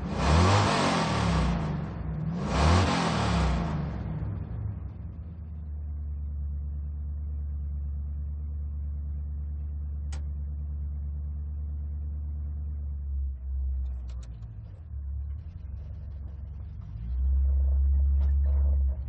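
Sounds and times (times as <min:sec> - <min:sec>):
engine revving: 0:00.0 - 0:05.4
car engine idling: 0:00.0 - 0:19.0.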